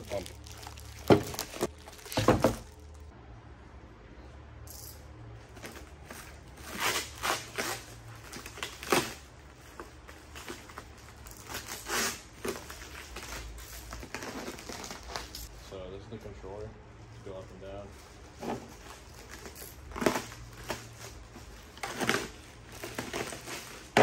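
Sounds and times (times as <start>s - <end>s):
plastic wrap crinkling and tearing: 0.0s - 3.1s, 10.3s - 15.5s.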